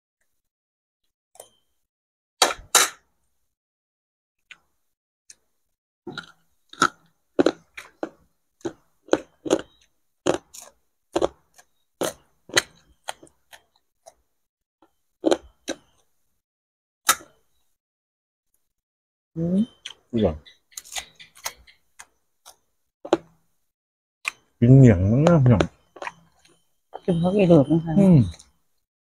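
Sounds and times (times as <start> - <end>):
crunching fried food: 6.1 - 13.7.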